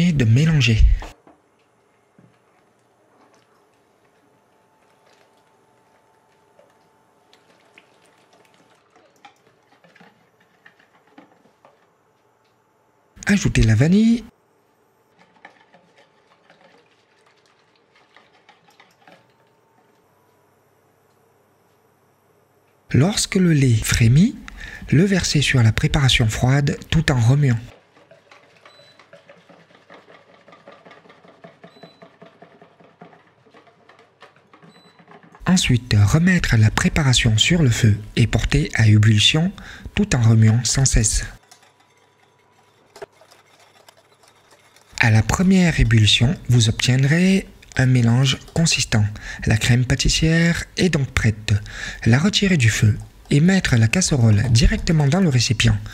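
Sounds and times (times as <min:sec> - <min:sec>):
milk pouring: 0:02.6 - 0:12.0, 0:15.1 - 0:19.6, 0:24.0 - 0:55.9
wire whisk beating in a bowl: 0:26.0 - 0:37.5, 0:40.0 - 0:49.8.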